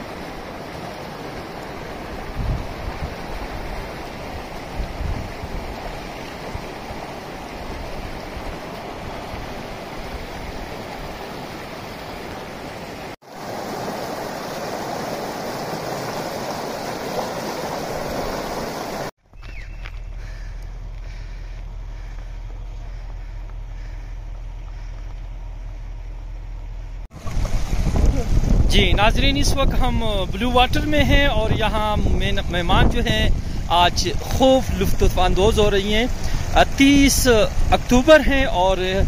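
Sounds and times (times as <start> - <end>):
stream rushing over stones: 0.0 - 19.1, 27.1 - 39.0.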